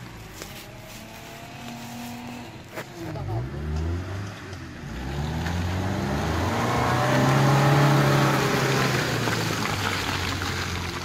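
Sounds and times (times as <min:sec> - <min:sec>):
off-road vehicle engine pulling: 0:00.0 - 0:11.0.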